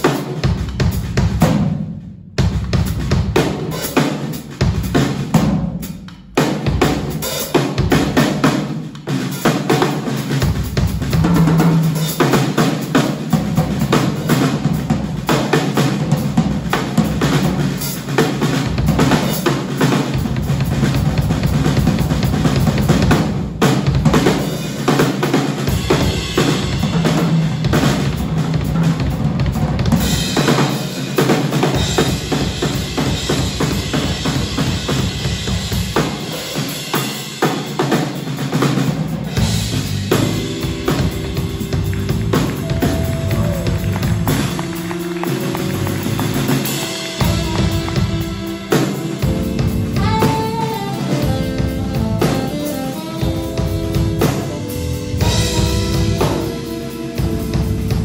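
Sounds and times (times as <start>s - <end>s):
drum kit playing: 0.0s - 58.0s
electric bass line: 39.3s - 58.0s.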